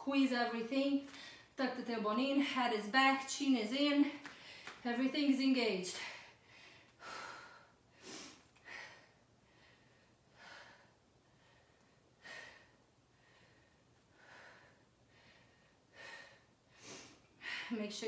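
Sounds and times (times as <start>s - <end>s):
woman breathing hard: 6.0s - 17.8s.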